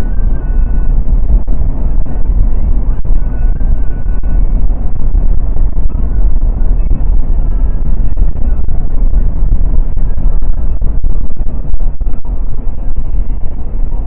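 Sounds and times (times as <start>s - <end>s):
car road and wind noise: 0.0s - 14.0s.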